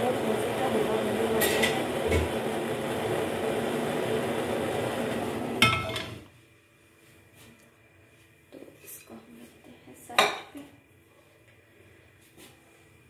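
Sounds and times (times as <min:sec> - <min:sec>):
gas burner hissing: 0:00.0 - 0:06.7.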